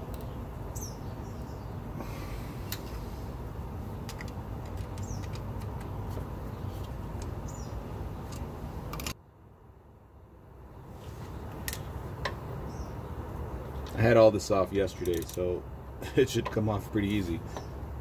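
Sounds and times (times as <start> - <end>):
metallic clicks of pliers: 15.0 - 15.5.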